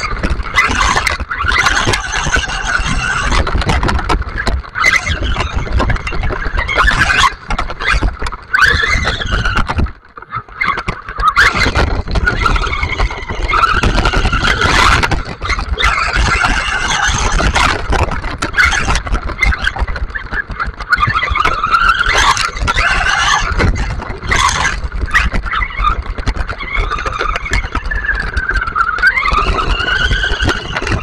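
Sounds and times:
rc car motor whine: 0:00.0 - 0:03.5, 0:21.0 - 0:31.0
tyres rumbling on gravel: 0:00.0 - 0:10.0, 0:10.6 - 0:31.0.

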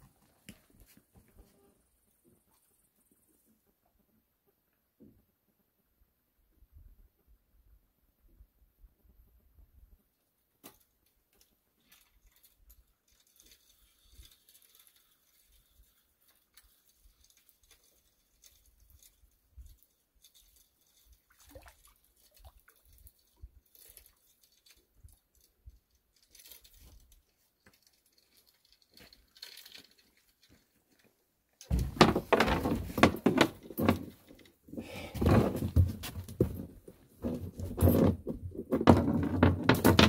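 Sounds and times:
faint clicks and rustles: 0:10.6 - 0:38.7.

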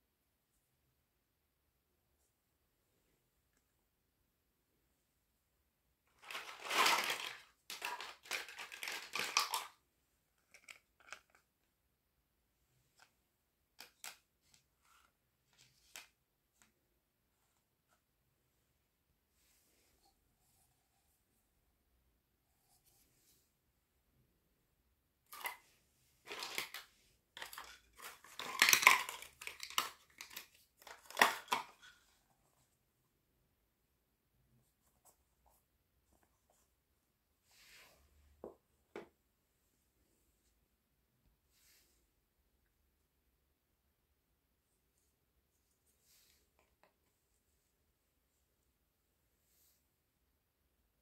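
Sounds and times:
plastic wrapping crinkling: 0:06.2 - 0:09.7, 0:27.4 - 0:31.9
plastic toy pieces clicking: 0:06.3 - 0:09.8, 0:27.4 - 0:31.9.

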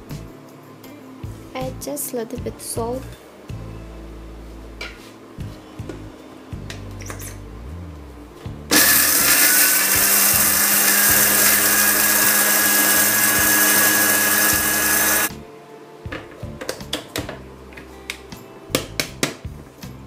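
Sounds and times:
electric spice grinder whining: 0:08.7 - 0:15.3.

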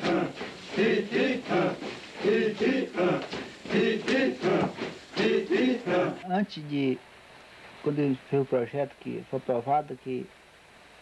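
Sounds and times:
men chanting together: 0:00.0 - 0:06.2.

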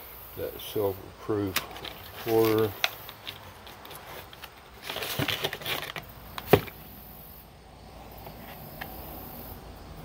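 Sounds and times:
foil bags rustling: 0:01.4 - 0:06.8.

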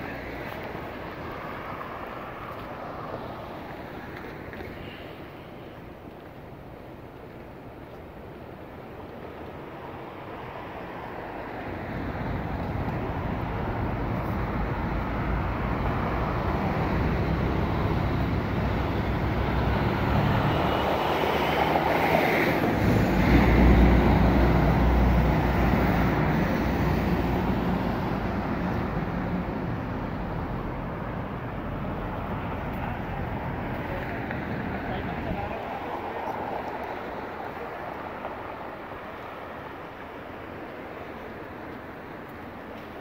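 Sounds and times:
city street traffic: 0:00.0 - 0:43.0.

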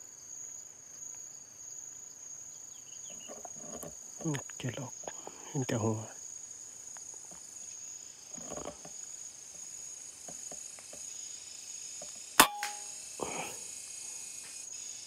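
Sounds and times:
forest insects droning: 0:00.0 - 0:15.0
air rifle shot: 0:12.4 - 0:12.9.

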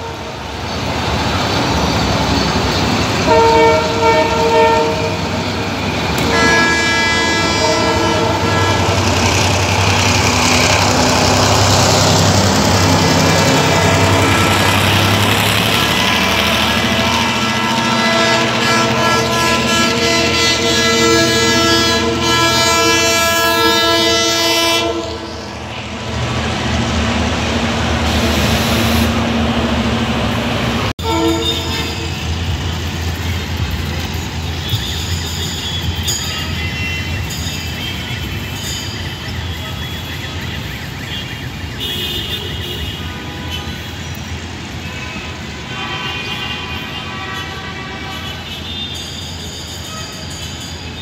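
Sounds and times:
train horn: 0:00.0 - 0:00.5, 0:03.1 - 0:05.4, 0:06.2 - 0:25.9, 0:28.1 - 0:29.2, 0:31.0 - 0:32.5, 0:44.8 - 0:50.3
rail noise: 0:00.0 - 0:51.0
train rushing: 0:00.0 - 0:51.0
wheel squeals: 0:31.7 - 0:41.3.

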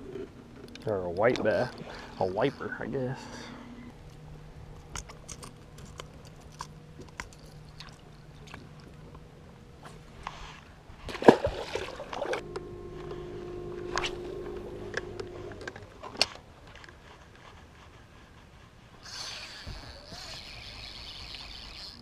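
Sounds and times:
electric motor humming: 0:12.3 - 0:16.2.

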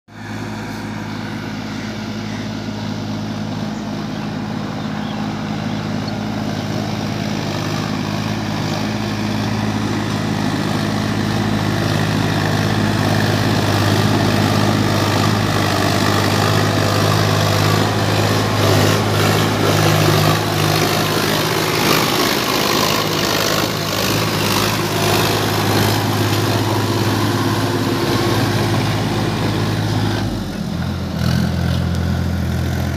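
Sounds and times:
tractor engine droning: 0:00.1 - 0:32.9.

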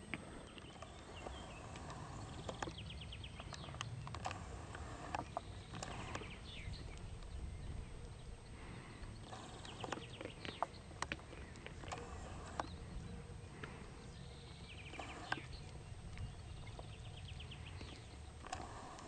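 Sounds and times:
steady low rumble: 0:00.0 - 0:19.0
sharp clicks and snaps: 0:00.1 - 0:07.4, 0:09.0 - 0:12.8.

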